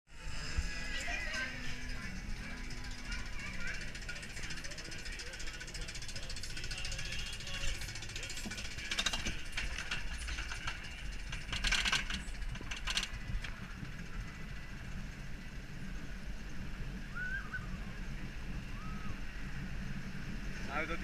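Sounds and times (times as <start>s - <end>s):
chain lift low rumble: 0.1s - 21.0s
mechanical clatter: 1.6s - 15.2s.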